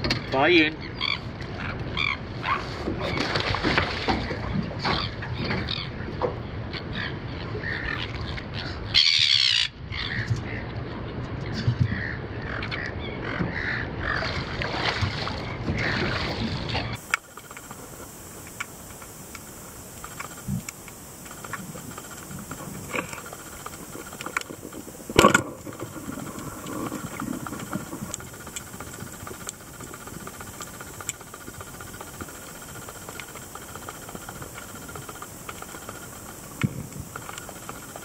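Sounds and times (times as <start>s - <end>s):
underwater hiss: 16.9s - 38.0s
faint clicks and crackles: 17.0s - 38.0s.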